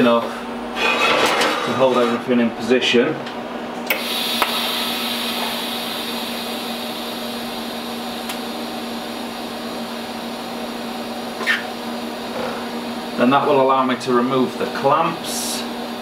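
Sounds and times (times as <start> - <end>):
welding set humming: 0.0 - 16.0
welding arc hissing and buzzing: 3.9 - 16.0.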